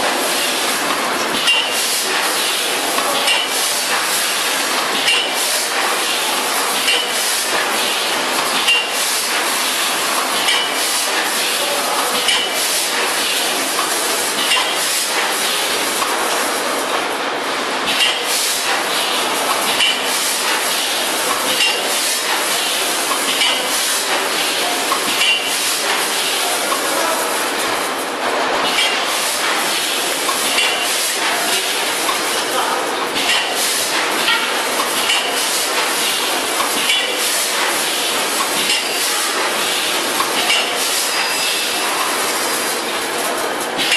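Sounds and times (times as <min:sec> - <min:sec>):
machine clinking: 0:00.8 - 0:16.4, 0:17.9 - 0:27.9, 0:28.6 - 0:43.9
packing machine clattering: 0:17.8 - 0:28.0, 0:28.6 - 0:43.9.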